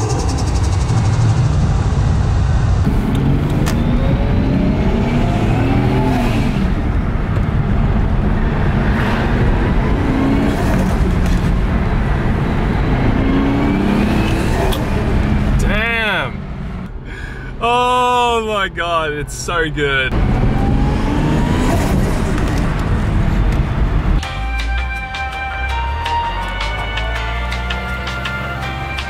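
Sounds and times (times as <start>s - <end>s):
car engine revving: 0.0s - 17.0s, 19.5s - 24.3s.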